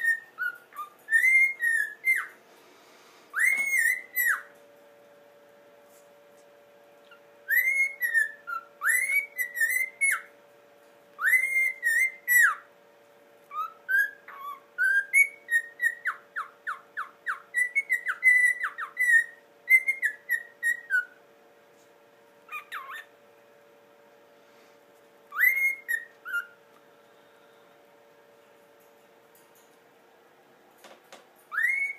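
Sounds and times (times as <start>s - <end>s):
cockatiel whistling a melody: 0.0s - 2.4s, 3.3s - 4.6s, 7.1s - 10.3s, 11.2s - 12.7s, 13.4s - 21.2s, 22.5s - 23.1s, 25.3s - 26.6s, 31.5s - 31.9s
cockatiel call: 3.3s - 4.5s, 13.5s - 21.2s, 22.5s - 23.1s, 25.3s - 26.6s, 31.5s - 31.9s.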